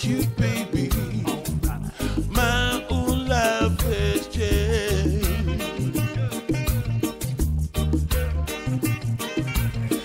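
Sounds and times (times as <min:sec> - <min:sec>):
man singing: 0:00.0 - 0:07.1
reggae backing track: 0:00.0 - 0:10.0.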